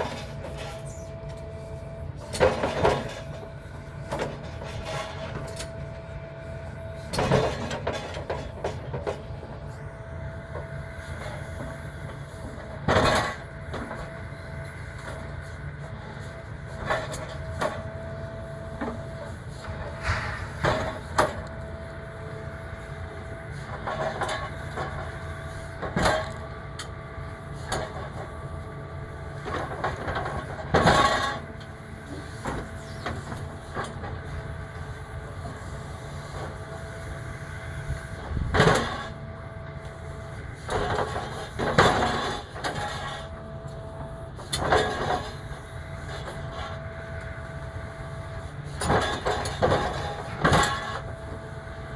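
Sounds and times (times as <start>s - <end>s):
metal clanks and scrapes: 0.0s - 1.4s, 2.2s - 5.8s, 7.0s - 9.5s, 11.0s - 17.9s, 18.8s - 21.6s, 23.5s - 26.9s, 27.5s - 28.4s, 29.3s - 37.2s, 38.1s - 39.2s, 39.8s - 43.4s, 44.4s - 46.8s, 48.4s - 51.1s
excavator engine running: 0.0s - 51.9s
thin steady whine: 0.0s - 51.9s.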